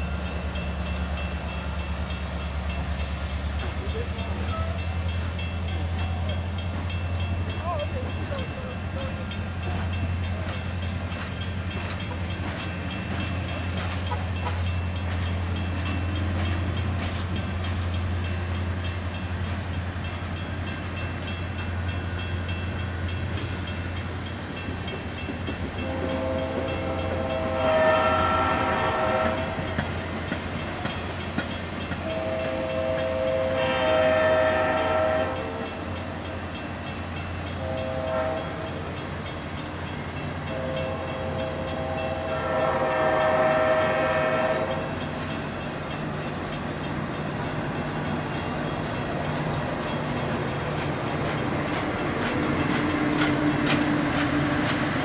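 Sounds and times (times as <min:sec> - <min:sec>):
train coaches rumbling: 0:00.0 - 0:55.0
locomotive horn: 0:25.8 - 0:29.7, 0:32.0 - 0:35.8, 0:37.6 - 0:38.8, 0:40.5 - 0:45.0.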